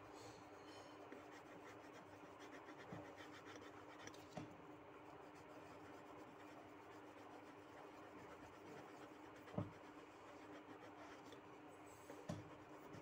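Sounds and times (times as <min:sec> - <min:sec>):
faint steady hum: 0:00.0 - 0:13.0
pencil scratching on paper: 0:01.1 - 0:04.3, 0:05.1 - 0:11.4, 0:12.1 - 0:13.0.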